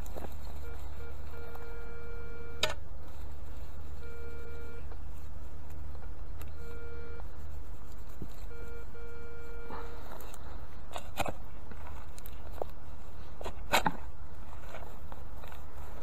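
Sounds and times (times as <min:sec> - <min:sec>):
steady low rumble: 0:00.0 - 0:16.0
metal detector beeps: 0:00.6 - 0:02.8, 0:04.0 - 0:04.9, 0:08.5 - 0:10.0.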